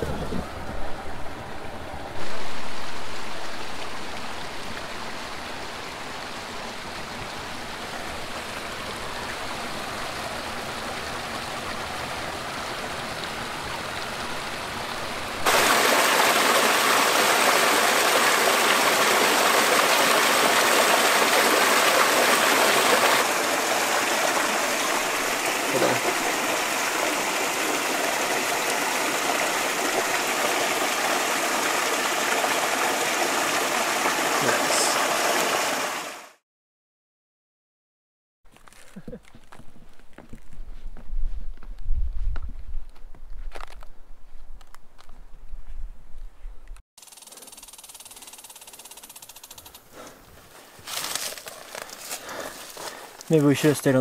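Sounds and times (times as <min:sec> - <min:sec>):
mountain creek flowing: 0:02.1 - 0:36.4, 0:52.0 - 0:54.0.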